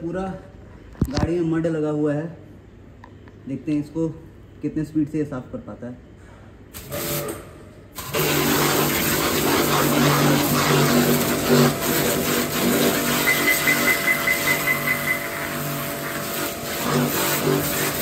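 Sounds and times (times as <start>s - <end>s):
high-pressure water jet hissing: 6.8s - 7.4s, 8.0s - 18.0s
pressure washer motor humming: 6.8s - 18.0s.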